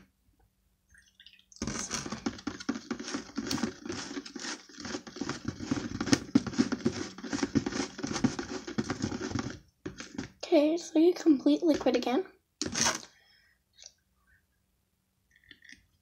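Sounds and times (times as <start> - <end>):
spoon stirring in plastic bowl: 1.6 - 10.4.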